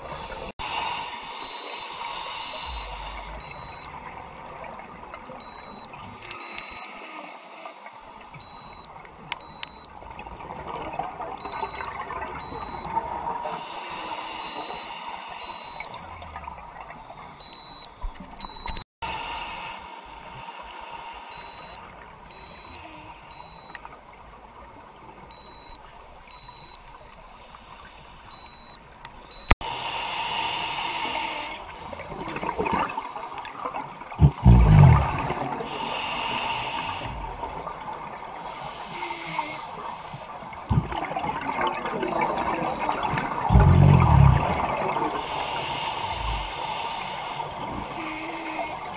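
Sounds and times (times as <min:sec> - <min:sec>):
diver exhaling bubbles: 0:34.2 - 0:35.7, 0:40.7 - 0:41.4, 0:43.2 - 0:46.8.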